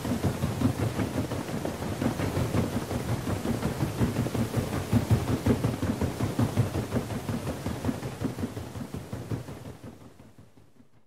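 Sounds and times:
paddle wheels churning water: 0.0s - 8.4s.

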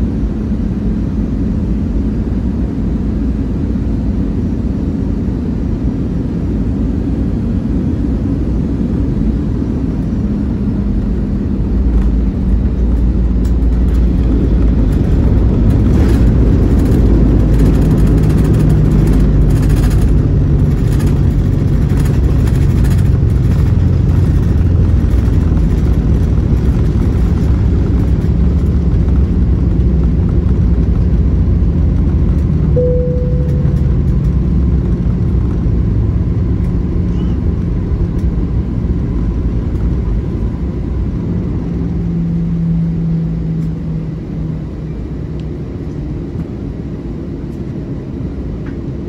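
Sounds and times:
airliner cabin rumble: 0.0s - 49.0s
short tone: 32.7s - 34.6s.

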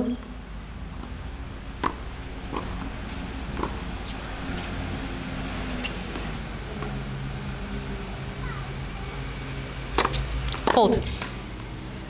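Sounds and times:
steady low hum: 0.0s - 12.0s
tennis ball pops: 1.8s - 2.7s.

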